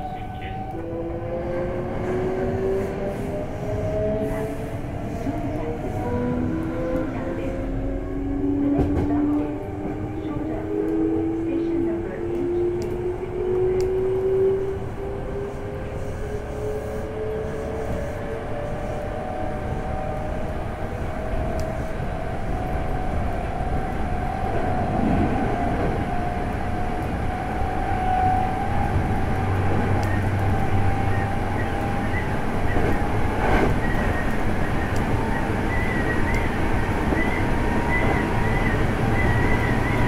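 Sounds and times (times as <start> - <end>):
wheels rumbling on rails: 0.0 - 40.0
train inverter whine rising: 10.1 - 40.0.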